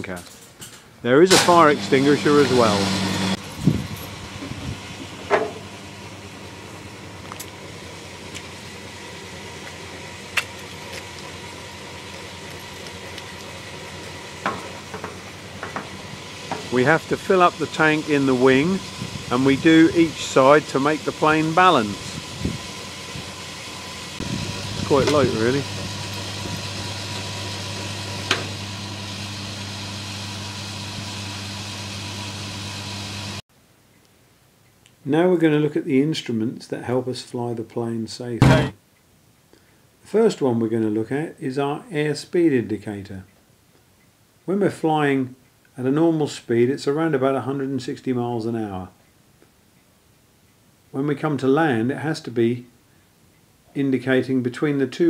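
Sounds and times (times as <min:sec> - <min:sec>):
steady outdoor hiss: 0:00.0 - 0:29.8, 0:33.5 - 0:55.0
fuel pump humming: 0:01.3 - 0:33.4, 0:38.4 - 0:38.8.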